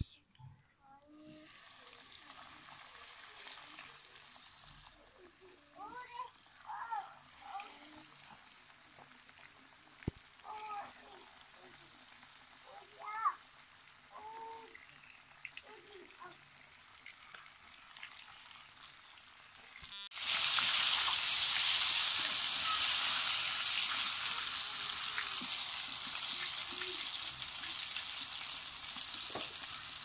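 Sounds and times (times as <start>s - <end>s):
chicken deep-frying in oil: 1.0s - 30.0s.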